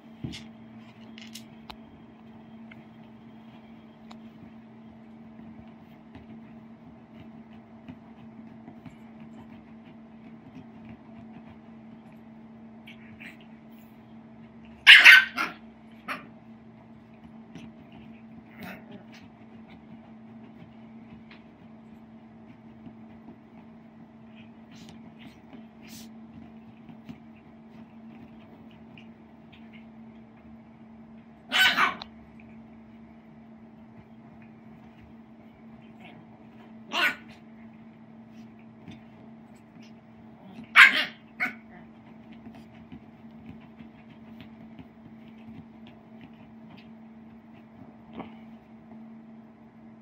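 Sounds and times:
puppy scratching a pet bed: 3.0s - 48.7s
puppy yelping: 14.8s - 16.3s, 31.5s - 32.1s, 36.9s - 37.4s, 40.5s - 41.8s
small dog barking: 14.8s - 16.3s, 18.5s - 19.3s, 31.5s - 32.2s, 36.8s - 37.4s, 39.8s - 42.0s.

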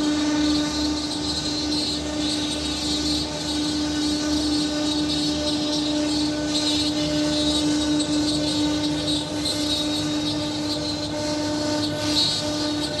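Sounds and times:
rough wood cutting noise: 0.0s - 13.0s
wood router spindles whining: 0.0s - 13.0s.

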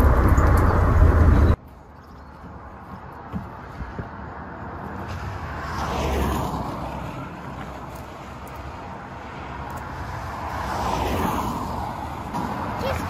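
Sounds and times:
vehicle approaching: 0.0s - 1.6s
car passing: 3.5s - 13.0s.

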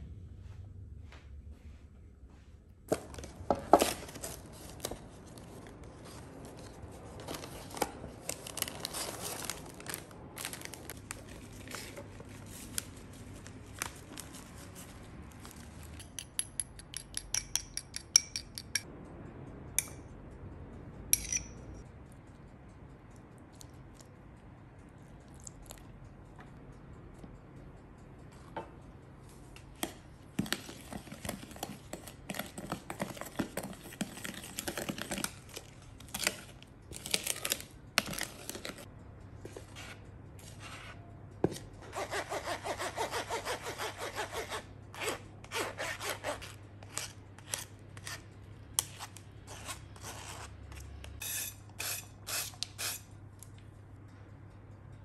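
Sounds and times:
utensils clinking: 15.8s - 18.8s, 21.2s - 21.8s.

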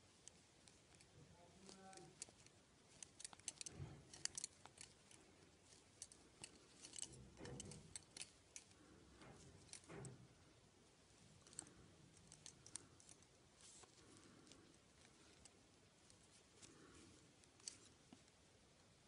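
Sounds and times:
knitting needles clicking: 0.0s - 10.2s, 11.4s - 18.4s
hands rubbing yarn: 11.3s - 18.4s.

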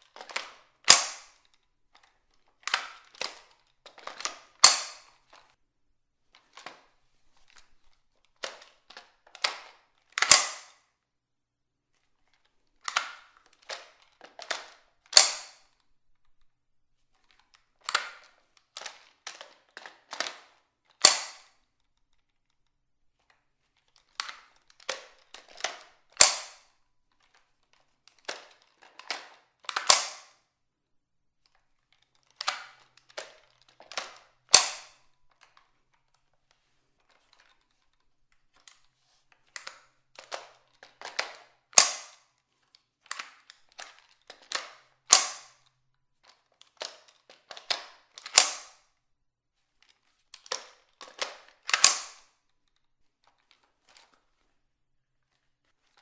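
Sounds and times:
rifle action snapping: 0.2s - 1.4s, 4.1s - 5.1s, 10.2s - 10.8s, 14.4s - 15.6s, 21.0s - 21.5s, 25.6s - 26.6s, 29.7s - 30.4s, 33.9s - 35.0s, 41.0s - 42.2s, 44.5s - 45.6s, 47.6s - 48.8s, 50.5s - 52.3s
rifle mechanism clicking: 0.2s - 1.5s, 2.6s - 5.4s, 9.4s - 10.8s, 12.8s - 15.8s, 21.0s - 21.6s, 24.0s - 26.7s, 28.1s - 30.4s, 32.3s - 35.0s, 39.5s - 42.2s, 43.0s - 45.7s, 46.7s - 48.8s, 50.4s - 52.3s.

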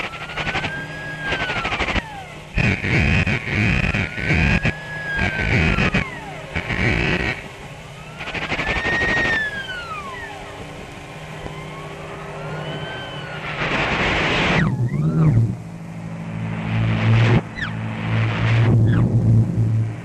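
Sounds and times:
high whistling tone sliding: 0.0s - 10.6s, 11.4s - 15.6s, 16.2s - 20.0s
noisy swells: 0.0s - 20.0s.

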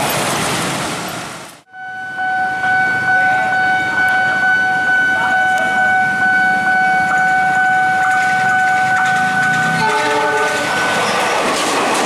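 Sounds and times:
diesel locomotive rumble: 0.0s - 12.0s
steady single-pitched tone: 1.7s - 9.8s.

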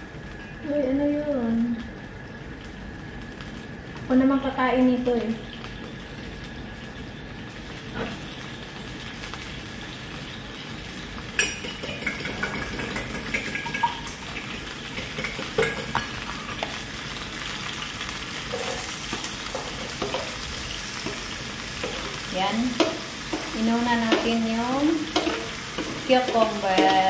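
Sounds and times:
oil sizzling in frying pan: 0.0s - 27.0s
utensils knocking cookware: 22.7s - 27.0s.

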